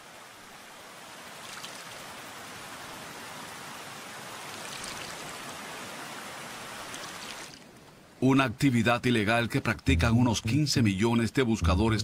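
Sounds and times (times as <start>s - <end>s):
running water rushing: 0.0s - 8.2s.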